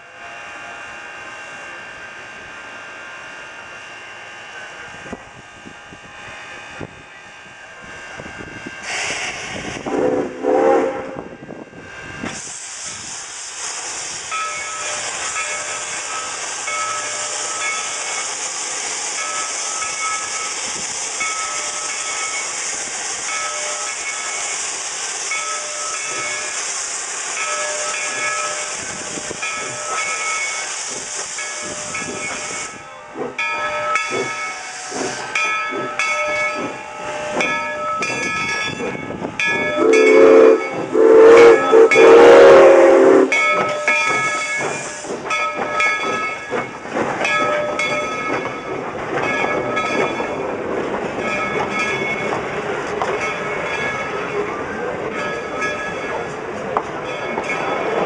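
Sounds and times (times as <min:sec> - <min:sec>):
steam locomotive chuffing and clanking: 0:00.0 - 0:58.0
steam hissing: 0:07.7 - 0:58.0
steam whistle blasts: 0:08.9 - 0:11.4, 0:39.8 - 0:43.7.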